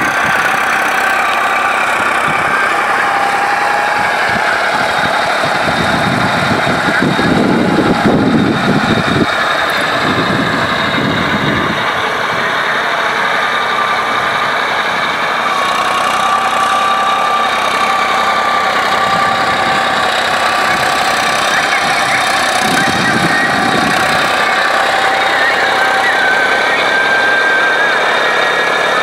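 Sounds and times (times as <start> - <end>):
tractor engine running: 0.0 - 29.0
low rumble: 1.7 - 15.5.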